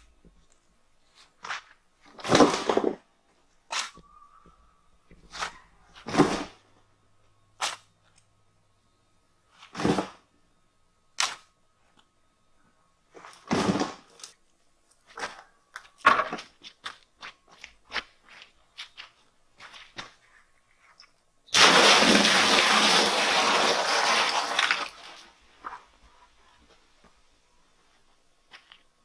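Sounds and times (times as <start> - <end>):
shovel scraping dry dirt: 5.3 - 6.6.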